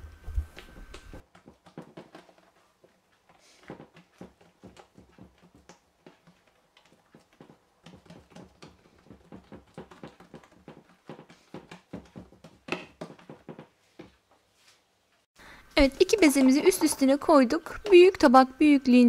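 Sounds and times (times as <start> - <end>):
hands patting dough on wood: 0.3 - 14.5.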